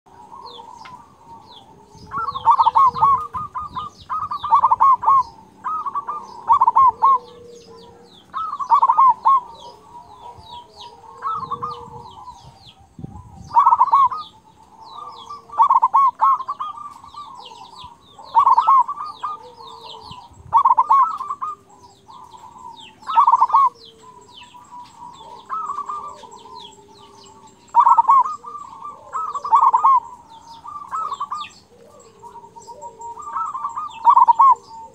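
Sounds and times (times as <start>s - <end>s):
dove cooing: 0.1s - 34.9s
small birds chirping: 0.1s - 34.9s.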